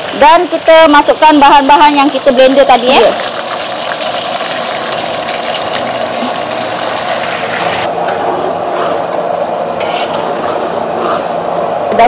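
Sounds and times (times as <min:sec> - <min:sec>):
paste sizzling in hot oil: 0:02.1 - 0:07.9.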